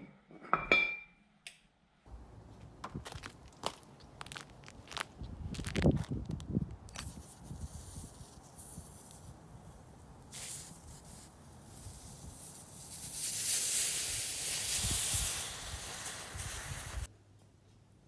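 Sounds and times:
hot metal sizzling in snow: 7.0s - 17.1s.

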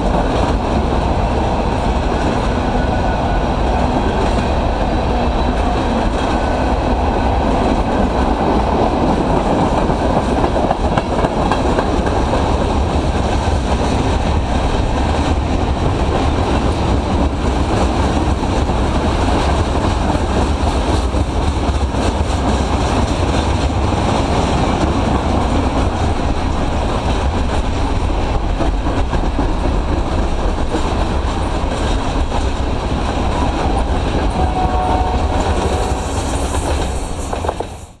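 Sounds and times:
freight train wheels rumbling: 0.0s - 38.0s
faint high tone: 34.3s - 36.0s.

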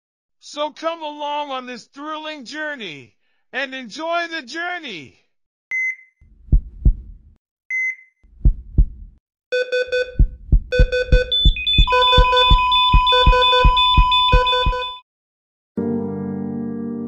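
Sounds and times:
monitor alarm beeps: 5.7s - 6.2s, 7.7s - 8.2s, 9.6s - 15.0s
monitor beeps: 5.7s - 6.2s, 7.7s - 8.2s, 9.6s - 15.0s
heartbeat thumps: 6.3s - 7.4s, 8.3s - 9.2s, 9.8s - 15.0s
steady high alarm tone: 9.6s - 15.0s.

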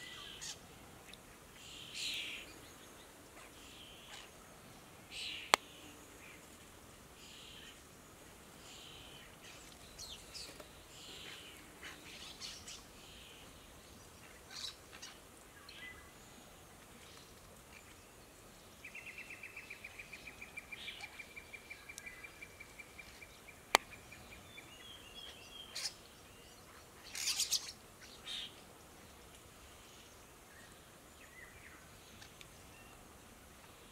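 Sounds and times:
starlings calling: 0.0s - 0.6s, 18.8s - 28.6s.

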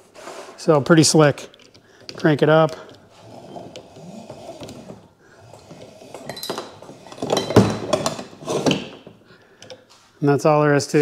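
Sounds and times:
anchor scraping and clinking: 0.9s - 10.0s
hand crank winding: 1.6s - 7.3s.

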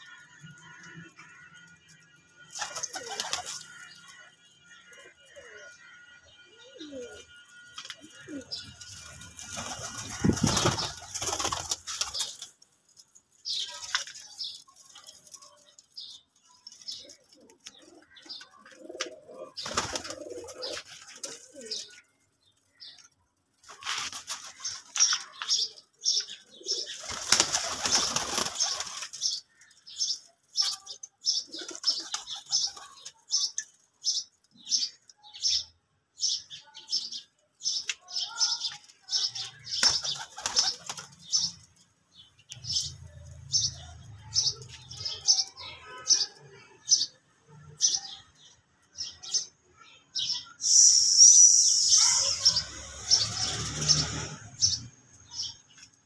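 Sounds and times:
pigeons flapping wings: 2.5s - 3.8s, 8.9s - 12.5s, 19.6s - 21.4s, 26.9s - 29.2s, 39.8s - 41.3s.

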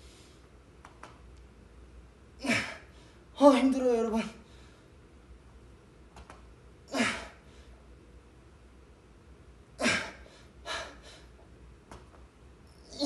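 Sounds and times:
man grunting: 2.4s - 2.9s, 6.9s - 7.4s, 9.8s - 10.2s
man breathing out hard: 9.8s - 11.3s.

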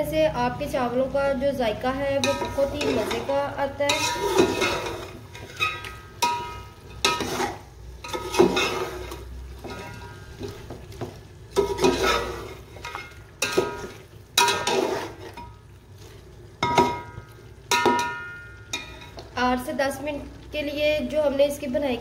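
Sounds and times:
meat sizzling: 1.5s - 21.9s
metal spatula scraping a pot: 2.1s - 10.9s, 11.5s - 19.2s.

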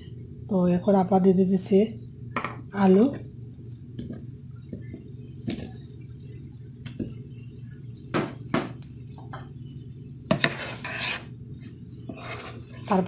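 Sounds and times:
steady low hum: 0.0s - 13.0s
utensils knocking on frying pan: 8.1s - 8.8s
spatula scraping food in pan: 10.3s - 13.0s.

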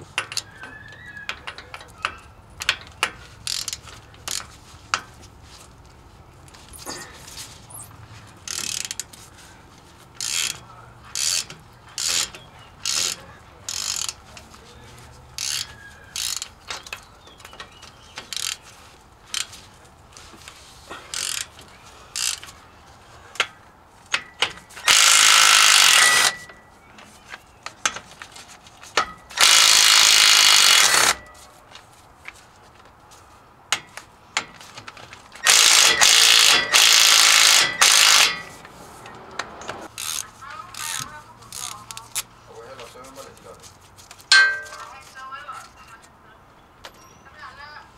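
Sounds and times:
hand ratchet clicking: 1.4s - 4.5s, 8.5s - 9.1s, 10.2s - 14.2s, 15.4s - 17.0s, 21.1s - 21.5s, 22.1s - 22.5s, 24.1s - 26.5s, 29.0s - 31.2s, 35.4s - 38.6s, 39.9s - 42.2s
cordless power tool spinning bolts: 24.8s - 26.5s, 29.3s - 31.2s, 35.4s - 38.6s.

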